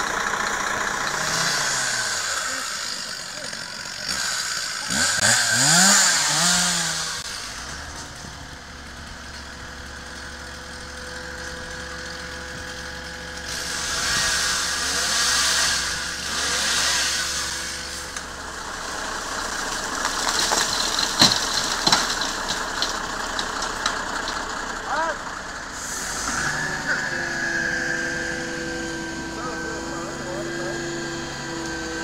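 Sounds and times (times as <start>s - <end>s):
diesel engine running: 0.0s - 32.0s
snow and ice falling: 19.1s - 24.1s.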